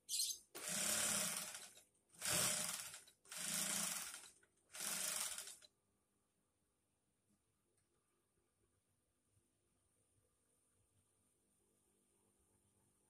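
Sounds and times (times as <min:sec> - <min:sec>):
industrial sewing machine stitching: 0:00.6 - 0:05.7.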